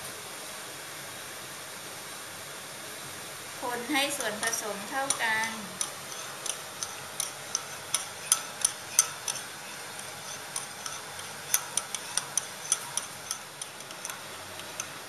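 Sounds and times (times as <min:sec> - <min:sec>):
metal spoon clinking glass bowl: 0:04.1 - 0:15.0.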